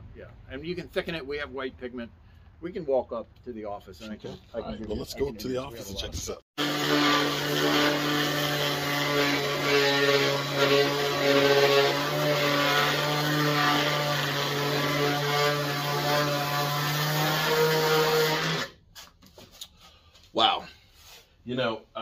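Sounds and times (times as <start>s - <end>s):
orbital sander running: 6.6s - 18.7s.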